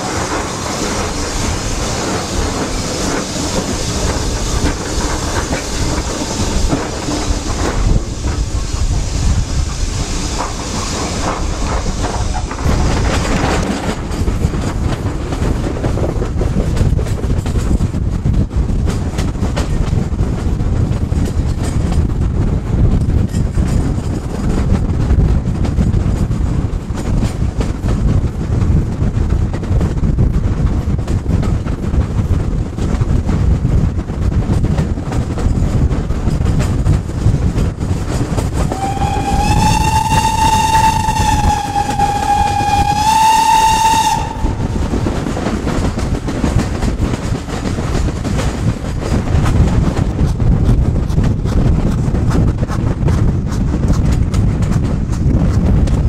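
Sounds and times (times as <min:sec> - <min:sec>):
rumble of moving train: 0:00.0 - 0:56.0
steam locomotive whistle: 0:38.7 - 0:44.8.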